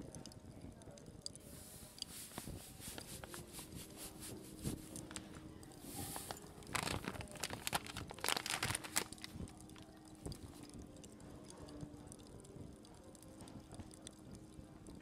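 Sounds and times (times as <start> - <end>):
hiss of falling powder: 1.5 - 5.0
sieve scratchy taps and rattles: 1.8 - 5.4.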